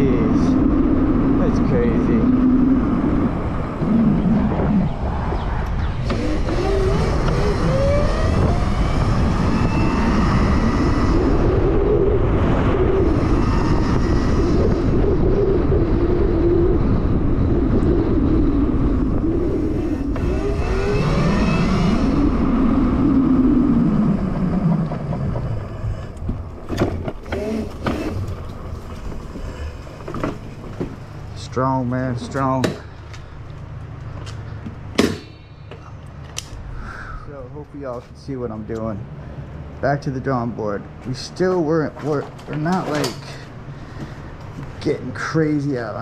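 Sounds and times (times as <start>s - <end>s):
wind rumble on microphone: 0.0s - 46.0s
electric motor whining: 5.6s - 11.9s, 18.8s - 31.2s
sharp knocks: 34.9s - 35.8s.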